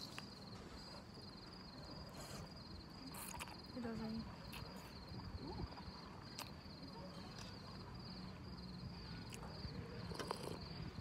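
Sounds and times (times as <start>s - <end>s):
crickets chirping: 0.0s - 11.0s
person slurping: 10.1s - 10.7s.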